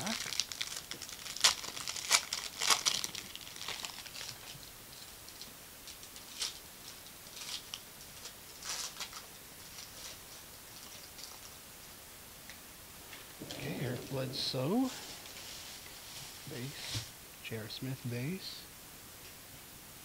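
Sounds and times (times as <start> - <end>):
foil card pack crinkling: 0.0 - 4.7, 5.3 - 11.6.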